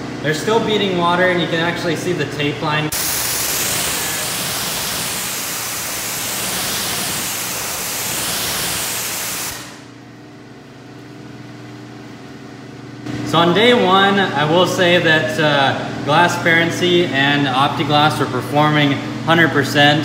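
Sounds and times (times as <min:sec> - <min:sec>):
pressure washer spraying water: 0:02.9 - 0:09.8.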